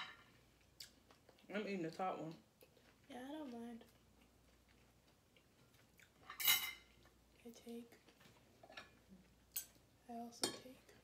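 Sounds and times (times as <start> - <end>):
forks clinking on ceramic plates: 6.3 - 6.9.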